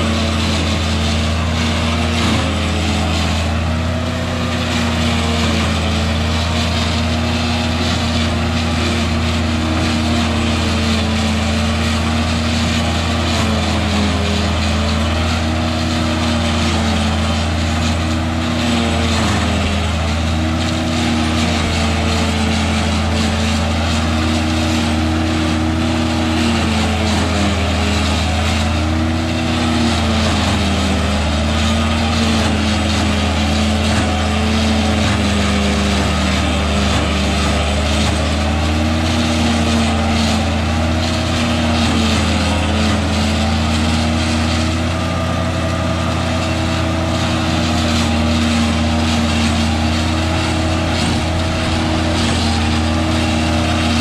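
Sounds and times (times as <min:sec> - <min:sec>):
silage processor engine running: 0:00.0 - 0:54.0.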